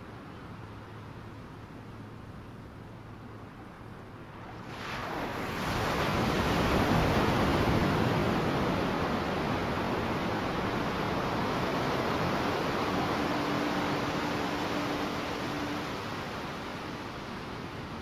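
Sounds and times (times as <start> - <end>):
ocean surf breaking: 4.5 - 18.0.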